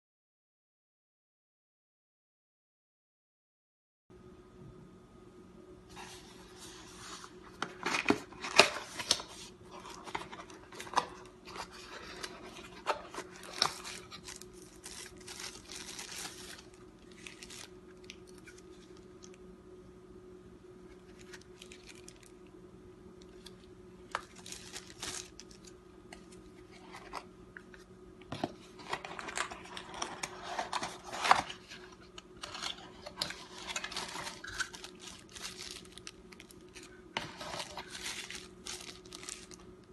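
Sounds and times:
faint steady hum: 4.1s - 39.9s
packaging rustling and crinkling: 5.9s - 19.4s, 20.9s - 22.4s, 23.2s - 27.3s, 28.3s - 39.9s.

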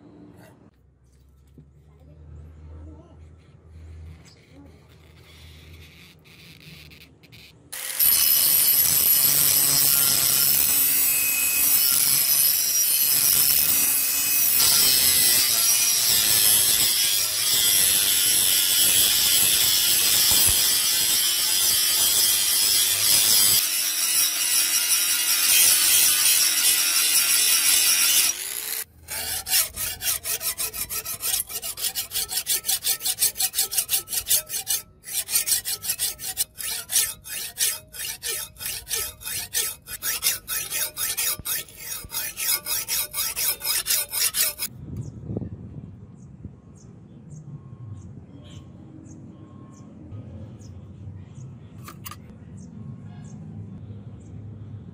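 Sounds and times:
hand file rasping on steel: 3.2s - 44.7s
angle grinder cutting steel: 4.4s - 44.7s.

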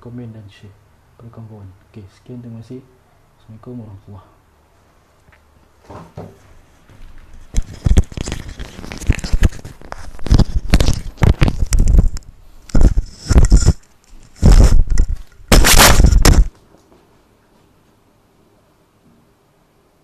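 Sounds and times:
rustling and knocking on microphone: 5.8s - 16.6s.

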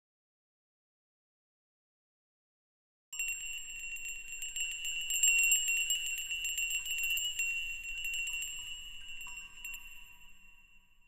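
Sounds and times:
high bell-like ringing tone: 3.2s - 11.0s
metallic tinkling: 3.2s - 11.0s.

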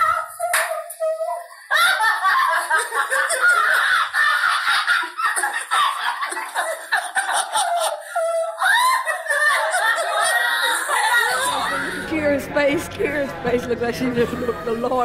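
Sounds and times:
women laughing hard: 0.0s - 12.1s.

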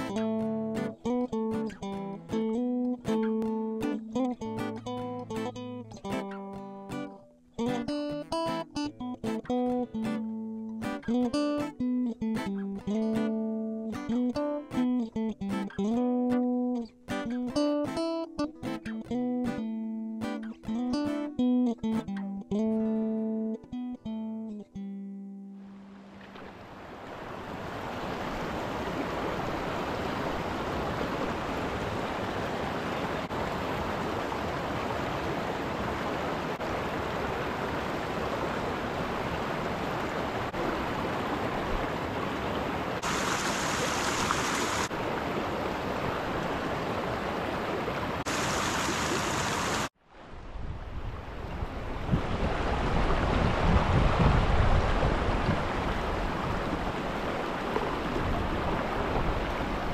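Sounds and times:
creek flowing over rocks: 25.6s - 50.0s, 52.2s - 59.9s.

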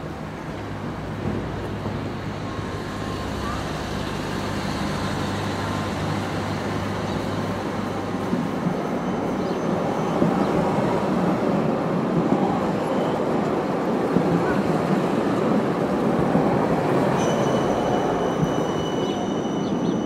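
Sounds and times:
tram rumbling on rails: 0.0s - 20.0s
faint high wheel squeal: 8.8s - 10.2s, 17.1s - 20.0s.

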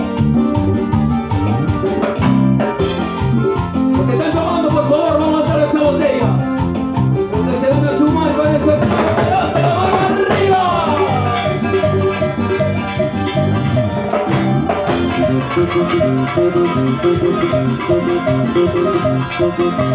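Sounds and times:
electric bass line: 0.0s - 19.9s
live dance band playing: 0.0s - 19.9s
timbales and percussion: 10.3s - 19.9s.

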